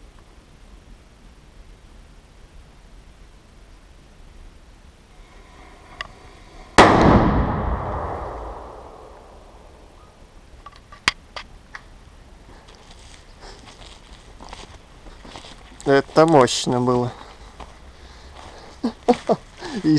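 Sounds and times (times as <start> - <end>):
firecracker bang echoing: 6.6 - 10.0.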